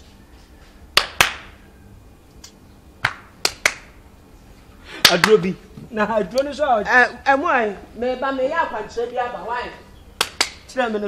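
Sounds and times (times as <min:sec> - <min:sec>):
sharp clap-like smacks: 0:01.0 - 0:01.6, 0:02.4 - 0:04.0, 0:05.0 - 0:05.4, 0:10.2 - 0:10.7.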